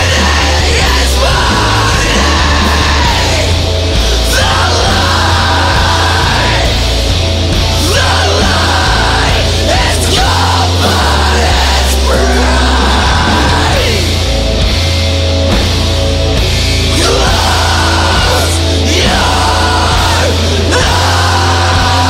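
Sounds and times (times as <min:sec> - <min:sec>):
person screaming vocals: 0:00.0 - 0:06.7
loud hardcore band playing: 0:00.0 - 0:22.0.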